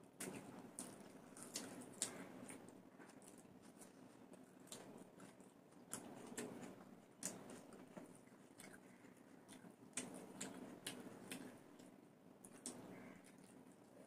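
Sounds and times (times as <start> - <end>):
people chewing food: 0.0 - 14.0
sharp clicks and smacks: 9.5 - 13.5.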